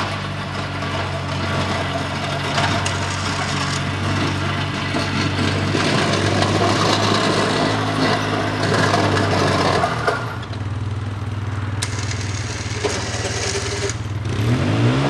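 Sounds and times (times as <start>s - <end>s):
atv engine running: 0.0s - 15.0s
rough scraping noise: 2.6s - 4.2s, 11.8s - 14.2s.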